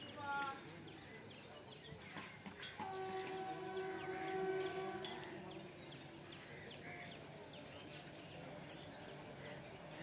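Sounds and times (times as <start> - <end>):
small birds chirping: 0.0 - 3.2, 3.8 - 10.0
distant train horn: 2.8 - 5.7.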